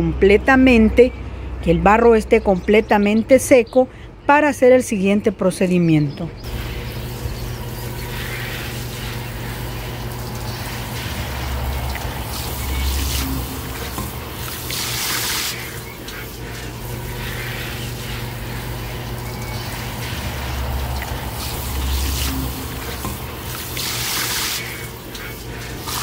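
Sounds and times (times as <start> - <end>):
hose spraying water on flowerpots: 6.5 - 26.0
water splashing into pooled water: 6.5 - 26.0.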